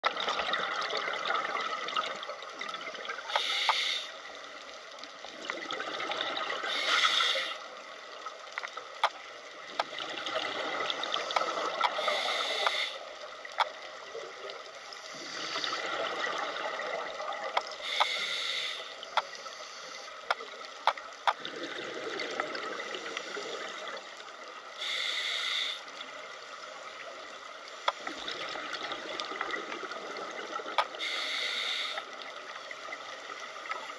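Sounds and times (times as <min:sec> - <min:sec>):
regulator inhalation hiss: 0:03.3 - 0:04.2, 0:06.7 - 0:07.7, 0:11.2 - 0:13.2, 0:17.8 - 0:20.1, 0:24.8 - 0:26.0, 0:31.0 - 0:32.2
underwater bubbling exhalations: 0:15.1 - 0:17.5, 0:21.4 - 0:24.0.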